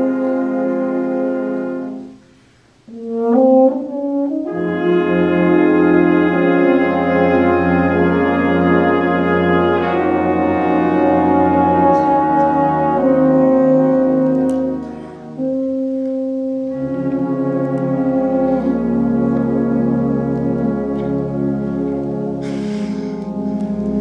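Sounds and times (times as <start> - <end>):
tuba and low brass: 0.0 - 24.0
brief hiss of noise: 22.4 - 23.3.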